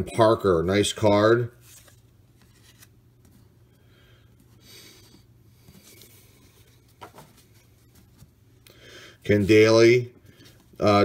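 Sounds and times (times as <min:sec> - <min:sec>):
cardboard cards rustling: 0:01.6 - 0:03.5.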